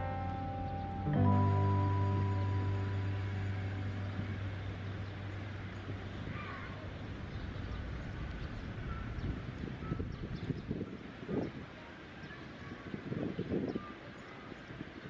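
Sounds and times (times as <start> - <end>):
faint high call: 0.0 - 5.3
held music chord: 0.0 - 7.4
distant city traffic hum: 0.0 - 15.0.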